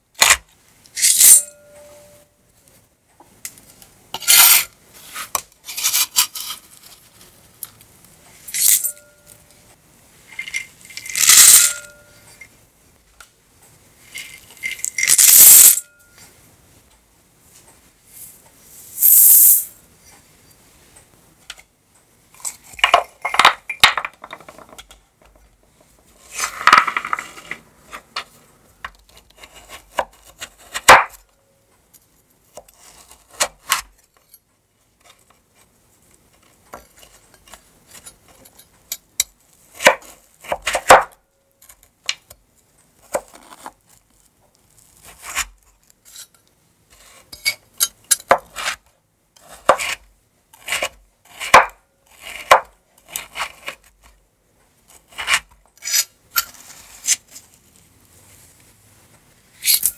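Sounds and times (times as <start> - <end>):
knife chopping on bamboo board: 51.4 - 51.7.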